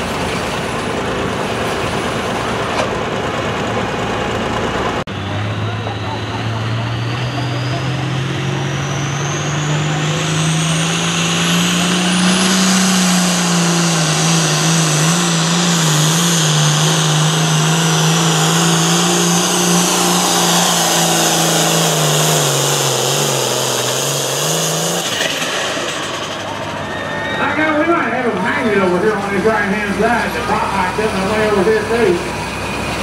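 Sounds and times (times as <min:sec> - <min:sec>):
diesel tractor engine at full throttle: 0:00.0 - 0:33.0
turbo whistle: 0:26.8 - 0:27.7.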